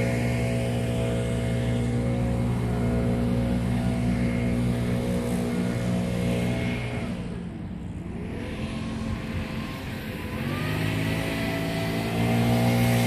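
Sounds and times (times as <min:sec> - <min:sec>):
mower engine running: 0:00.0 - 0:13.0.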